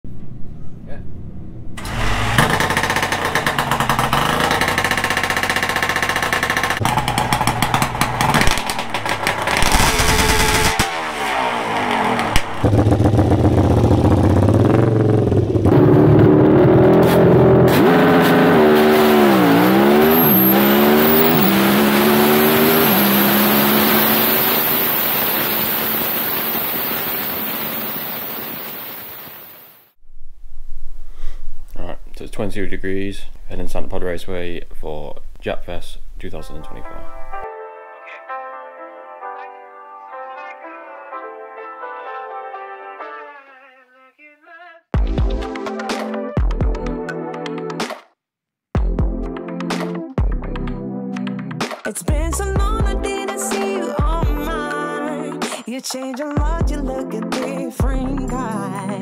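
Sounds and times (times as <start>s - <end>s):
motorcycle engine revving: 1.8s - 29.6s.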